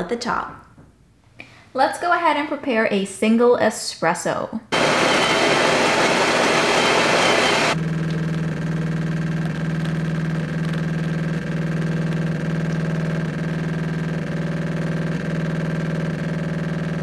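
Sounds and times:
coffee grinder grinding beans: 0:04.8 - 0:07.8
espresso pump humming: 0:04.8 - 0:07.8.

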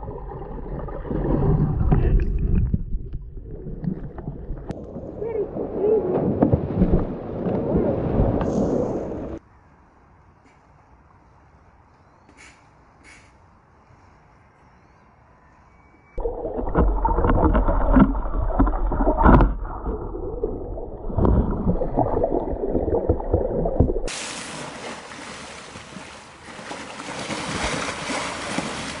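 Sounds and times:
underwater knocks and bubbling: 0:00.0 - 0:05.1, 0:06.2 - 0:08.5, 0:16.2 - 0:24.1
muffled underwater water sloshing: 0:00.0 - 0:09.4, 0:16.2 - 0:29.0
water splashing at surface: 0:16.2 - 0:29.0.

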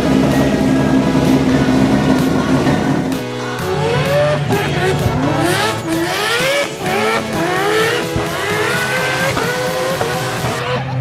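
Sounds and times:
spinning tyres hissing: 0:00.0 - 0:10.7
car engine revving: 0:00.0 - 0:11.0.

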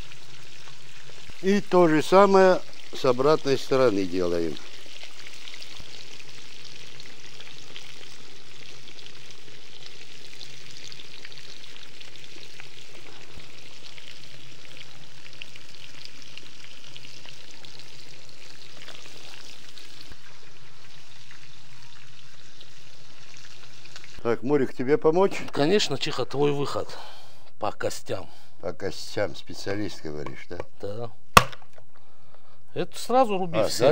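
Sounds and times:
food sizzling in hot fat: 0:00.0 - 0:24.3.

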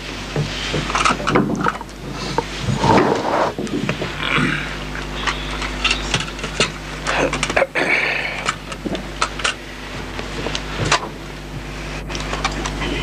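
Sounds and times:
electrical hum: 0:00.0 - 0:13.0
sharp clicks and knocks: 0:00.3 - 0:04.2.

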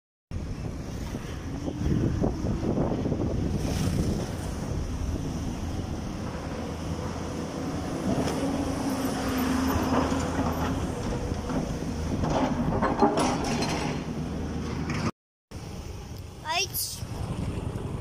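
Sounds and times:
metal clanks: 0:12.2 - 0:14.1.

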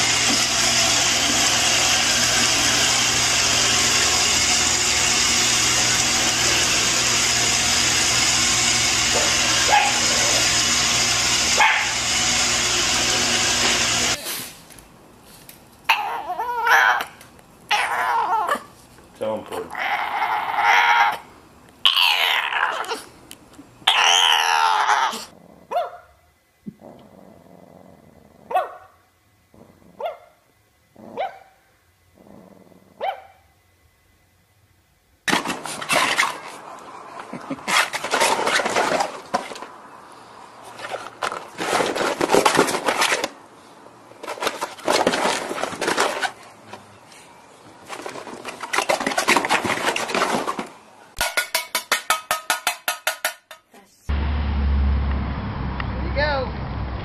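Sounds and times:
dog barking: 0:09.2 - 0:10.0, 0:11.6 - 0:11.9, 0:25.7 - 0:26.1, 0:28.5 - 0:29.0, 0:30.0 - 0:30.4, 0:31.2 - 0:31.6, 0:33.0 - 0:33.4.

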